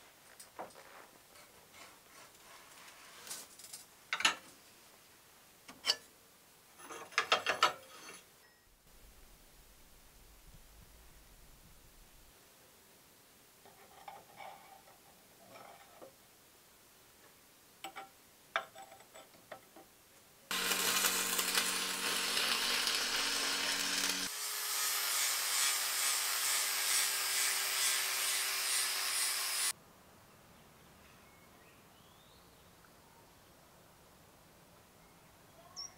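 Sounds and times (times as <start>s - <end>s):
angle grinder grinding steel: 20.5s - 29.7s
arc welder crackling: 20.5s - 29.7s.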